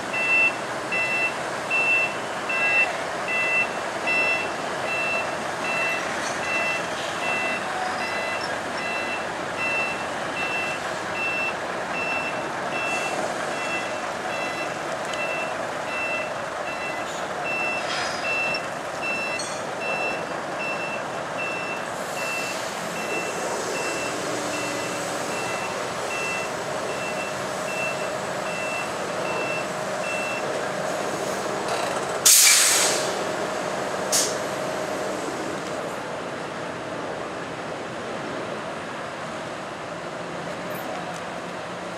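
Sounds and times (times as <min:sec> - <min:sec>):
diesel engine running: 0:00.0 - 0:40.4
reversing alarm beeping: 0:00.1 - 0:30.6
air brakes hiss: 0:22.0 - 0:25.4, 0:32.2 - 0:33.3, 0:34.1 - 0:35.4.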